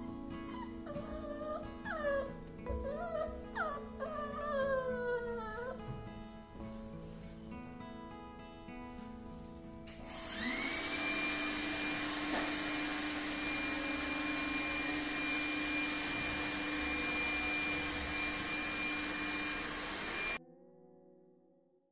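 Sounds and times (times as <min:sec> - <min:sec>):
vacuum cleaner whining: 0:10.0 - 0:20.4.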